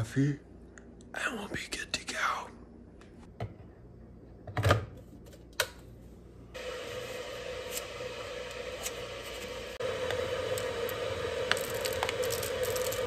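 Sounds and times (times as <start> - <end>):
kettle hissing as it heats: 6.5 - 13.0.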